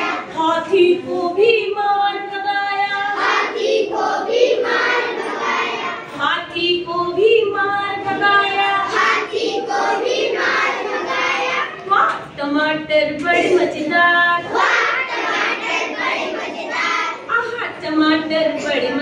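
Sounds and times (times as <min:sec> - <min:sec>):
children singing in chorus: 0:00.0 - 0:00.4, 0:03.0 - 0:06.2, 0:08.4 - 0:11.8, 0:13.3 - 0:17.2
woman singing: 0:00.3 - 0:03.1, 0:06.2 - 0:08.9, 0:12.3 - 0:14.5, 0:17.3 - 0:19.0.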